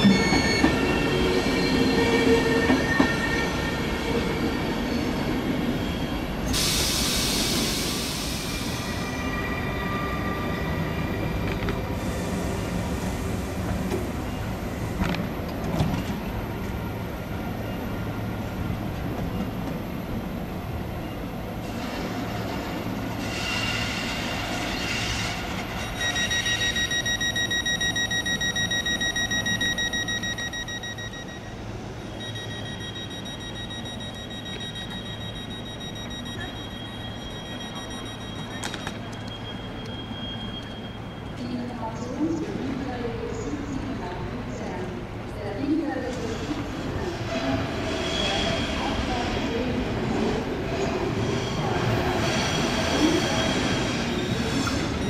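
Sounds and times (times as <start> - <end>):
train wheels squealing: 0.0 - 11.4, 23.1 - 42.1, 47.3 - 49.2, 50.7 - 55.0.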